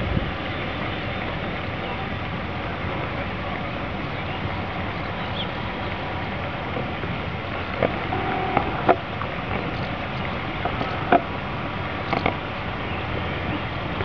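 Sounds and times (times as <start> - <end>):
fast-flowing river rushing: 0.0 - 14.0
brief tone: 8.1 - 8.9.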